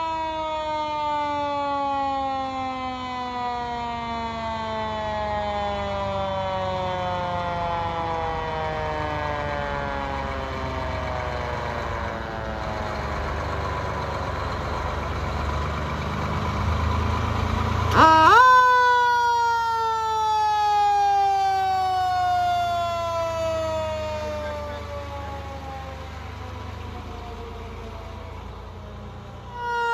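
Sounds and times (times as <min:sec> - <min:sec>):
fire truck siren wailing: 0:00.0 - 0:29.9
truck engine rumble: 0:00.0 - 0:29.9.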